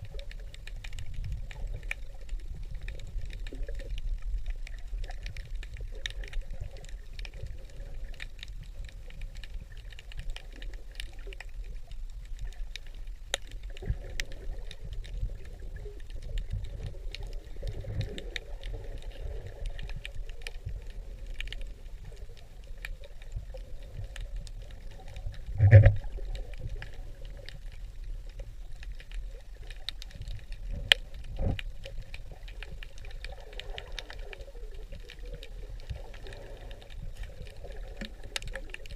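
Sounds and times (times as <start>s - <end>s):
low rumble of moving water: 0.0s - 38.9s
small clicks and crackles: 0.0s - 38.9s
underwater knocks: 25.5s - 26.1s.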